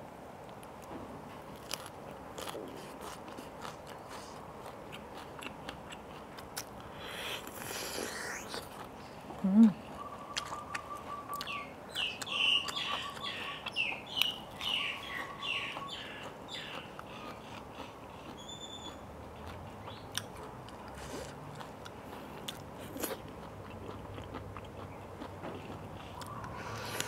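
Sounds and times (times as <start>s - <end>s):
person chewing food: 0.5s - 27.0s
bird chirping: 9.8s - 17.3s, 18.2s - 19.1s.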